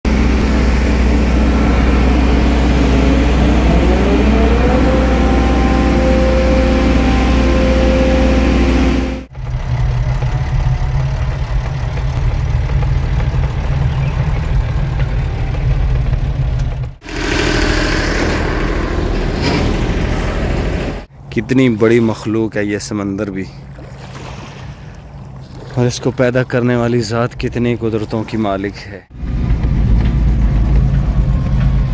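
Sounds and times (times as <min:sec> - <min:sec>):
crane engine running and revving: 0:00.0 - 0:21.1, 0:29.1 - 0:31.9.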